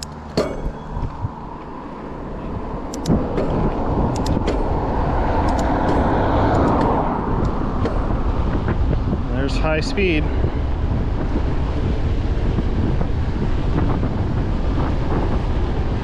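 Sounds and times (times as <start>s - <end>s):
tyre noise on asphalt: 0.0s - 16.0s
wind on microphone: 0.0s - 16.0s
sharp clicks: 2.8s - 4.8s, 5.4s - 8.0s.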